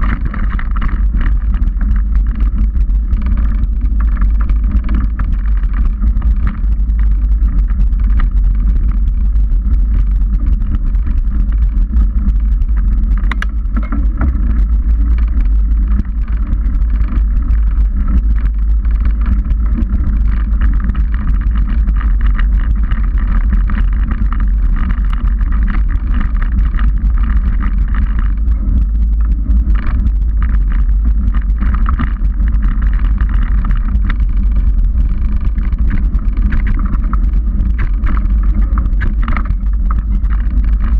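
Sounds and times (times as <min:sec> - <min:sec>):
bike tyres rumbling on dirt: 0:00.0 - 0:09.0, 0:11.8 - 0:40.9
wind on microphone: 0:00.0 - 0:40.9
clicks and rattles over stones: 0:35.5 - 0:40.9.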